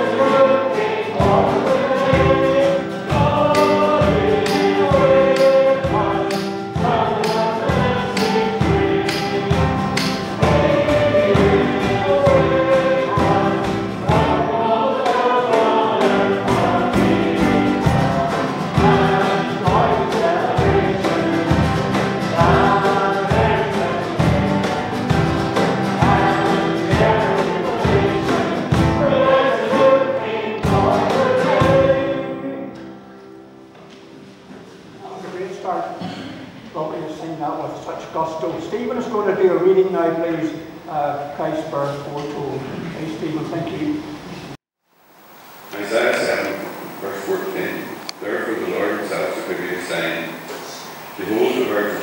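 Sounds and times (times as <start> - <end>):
small band strumming: 0.0 - 33.0
congregation singing a carol: 0.0 - 44.6, 45.7 - 52.0.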